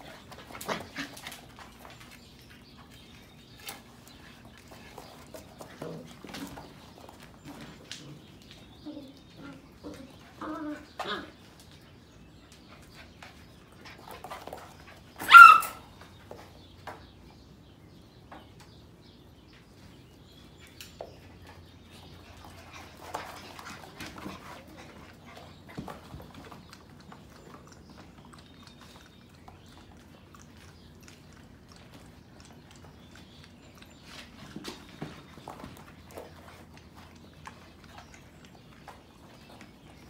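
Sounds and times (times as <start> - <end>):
puppies scuffling: 0.0 - 40.0
puppy yapping: 15.2 - 15.8.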